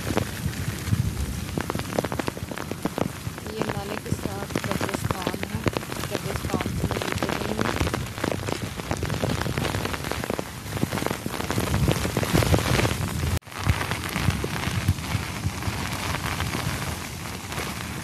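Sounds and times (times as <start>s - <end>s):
heavy rain falling: 0.0s - 18.0s
sharp raindrop hits: 0.0s - 18.0s.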